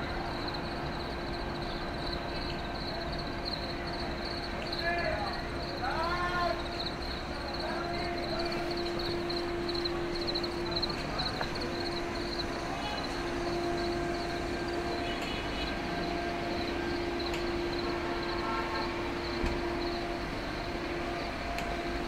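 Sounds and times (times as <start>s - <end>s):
low mechanical hum: 0.0s - 22.0s
pulsing high chirping: 0.4s - 15.0s.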